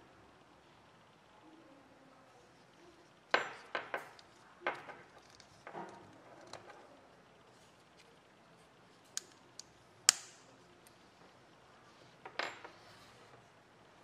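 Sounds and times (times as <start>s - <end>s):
metallic clicks of snap hook: 9.2s - 10.5s.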